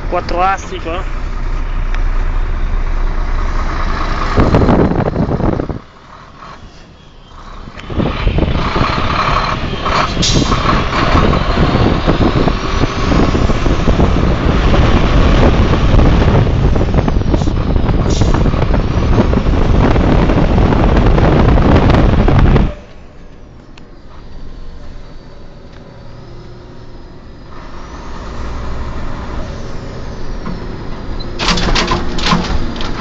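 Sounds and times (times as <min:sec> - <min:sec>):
road noise: 0:00.0 - 0:33.0
truck engine running: 0:00.0 - 0:33.0
wind rush on microphone: 0:03.4 - 0:06.6, 0:07.4 - 0:22.9.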